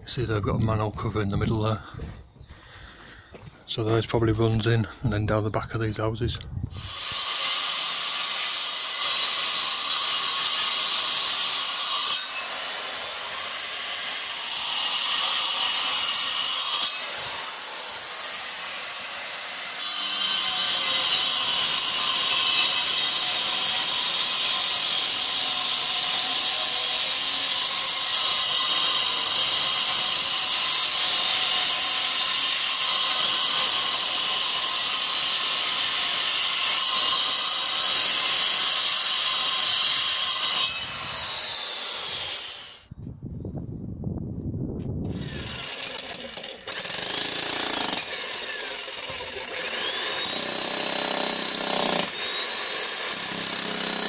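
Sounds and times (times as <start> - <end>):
angle grinder cutting concrete: 6.8 - 42.9, 45.1 - 54.0
electric breaker hammering concrete: 45.4 - 54.0.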